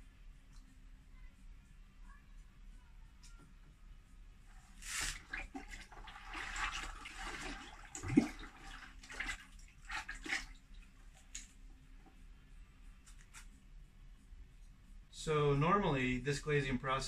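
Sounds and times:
liquid glaze sloshing and pouring: 4.7s - 11.5s
rising gurgle: 5.2s - 10.4s.

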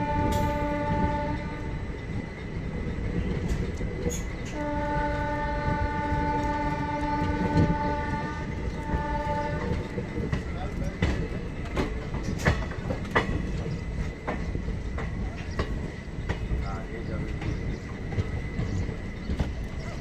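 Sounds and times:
locomotive horn blasts: 0.0s - 1.8s, 4.5s - 9.9s
train rumbling and clacking on rails: 0.0s - 20.0s.

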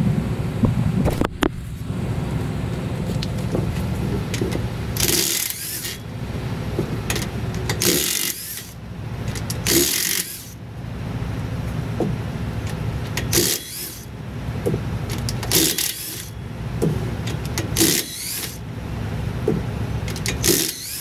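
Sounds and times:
steady low rumble: 0.0s - 20.6s
impact wrench rattling whir: 3.0s - 10.7s, 12.0s - 18.7s, 19.4s - 21.0s.

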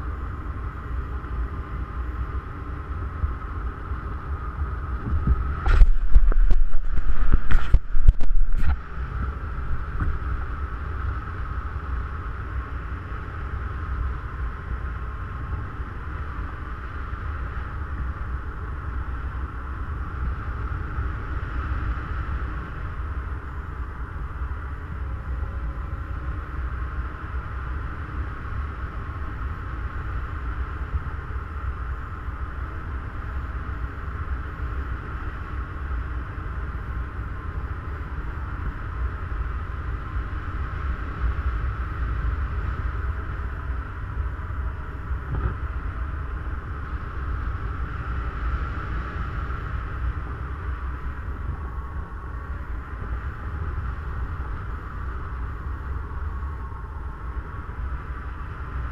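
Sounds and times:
wind buffeting microphone: 3.0s - 11.9s.

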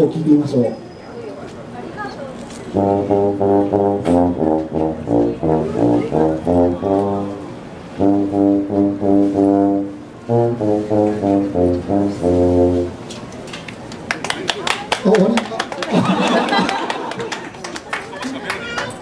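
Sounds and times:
tuba melody: 2.7s - 13.1s.

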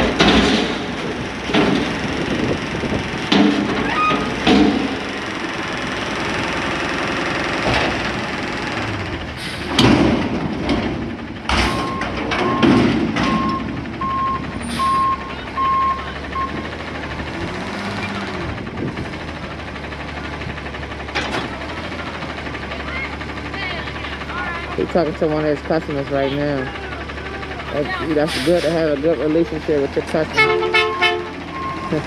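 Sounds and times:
loud metal bangs: 0.0s - 5.2s, 9.6s - 14.7s
garbage truck engine running: 0.0s - 32.0s
back-up alarm beeping: 11.8s - 16.6s, 30.4s - 32.0s.

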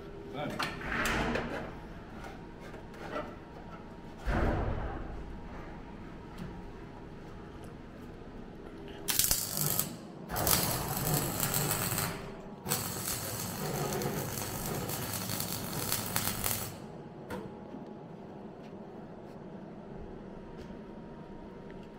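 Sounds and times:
welding arc crackling on steel: 9.1s - 16.9s.

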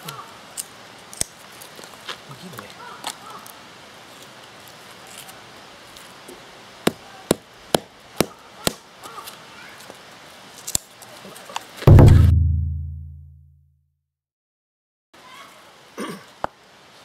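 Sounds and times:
loud low boom: 11.9s - 13.3s.

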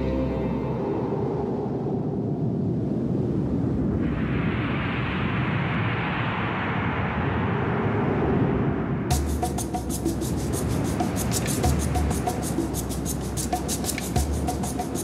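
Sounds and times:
low rumbling noise: 0.0s - 15.0s.

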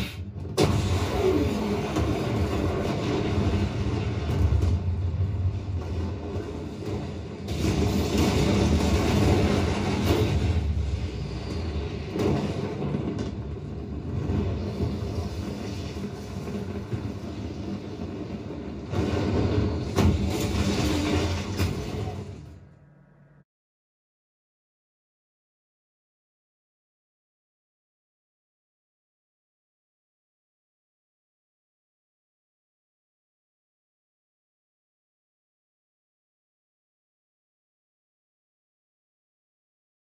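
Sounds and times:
huge explosion: 0.0s - 23.0s
fire roaring: 0.0s - 23.2s.

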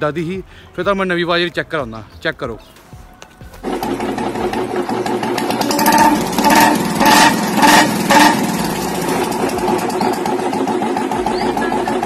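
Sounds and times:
motorcycle engine running: 3.6s - 12.0s.

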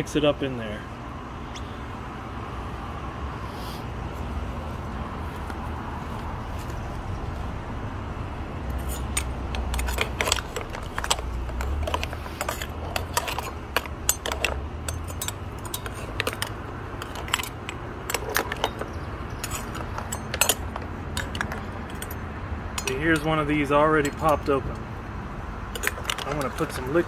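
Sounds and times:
metal ladle clinking on shells: 8.8s - 24.6s, 25.7s - 27.0s.

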